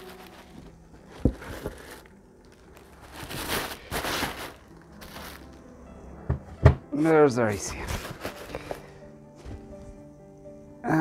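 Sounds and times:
packing material rustling: 0.0s - 5.8s, 7.6s - 10.0s.

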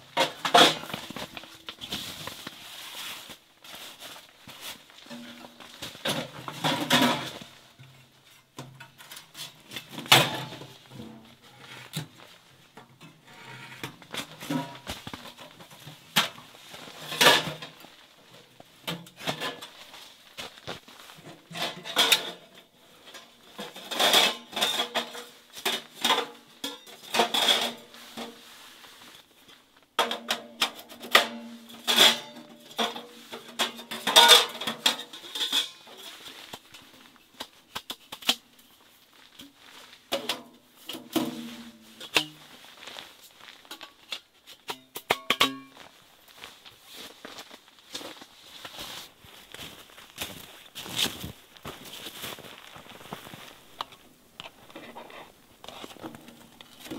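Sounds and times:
metal stove parts clanking: 21.5s - 22.6s, 30.0s - 36.2s, 43.7s - 45.8s.

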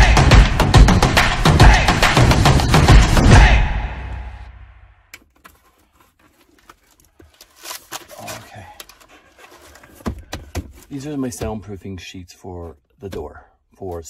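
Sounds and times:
intro music: 0.0s - 4.7s
cardboard box and packaging rustling: 5.2s - 11.6s.

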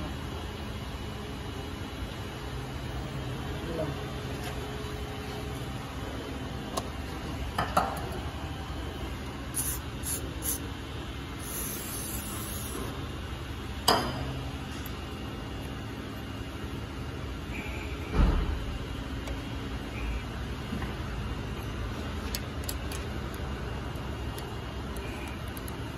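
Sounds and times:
steady background hum: 0.0s - 25.9s
aerosol spray can hissing: 9.5s - 10.6s, 11.4s - 12.8s.

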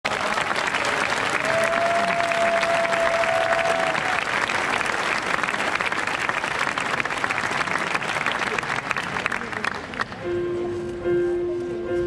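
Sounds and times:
large audience applauding: 0.0s - 10.2s.

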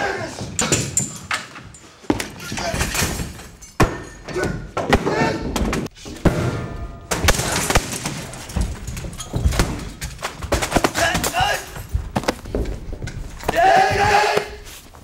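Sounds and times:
bodies thudding on desk and floor: 0.4s - 15.0s
scuffling: 8.3s - 15.0s.

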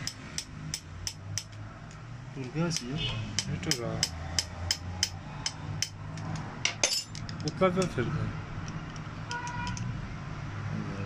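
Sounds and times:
sharp metallic clicks: 0.0s - 8.0s.

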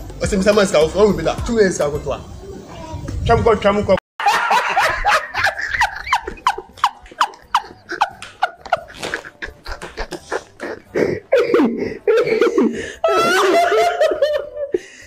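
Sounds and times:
woman laughing in squeaky yelps: 4.2s - 10.8s, 11.4s - 14.6s.

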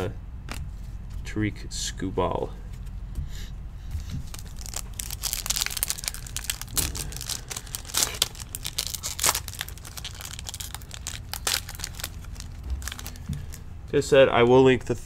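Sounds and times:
foil wrapper crinkling and tearing: 4.2s - 13.6s.

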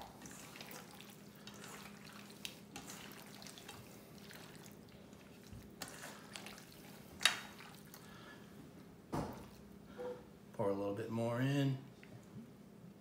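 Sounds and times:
hands squishing meat in marinade: 0.0s - 8.2s.

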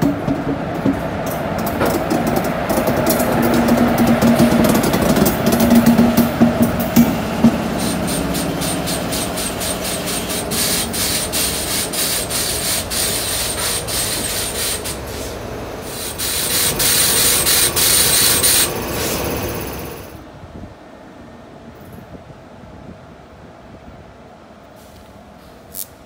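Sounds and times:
compressed air hissing: 6.8s - 20.1s.

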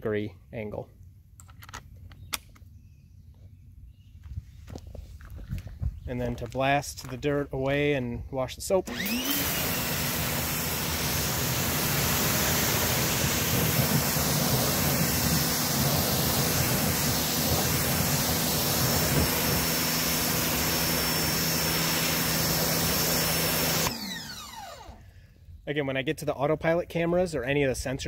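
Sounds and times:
pressure washer pump humming: 8.8s - 25.2s
water jet hissing and splashing: 9.4s - 23.9s.

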